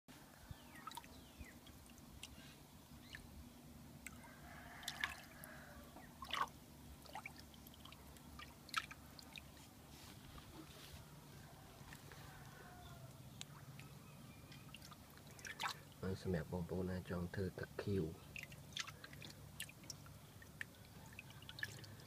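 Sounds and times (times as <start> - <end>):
water splashing and dripping: 0.7 - 2.4, 4.0 - 9.6, 13.0 - 16.1, 18.2 - 22.0.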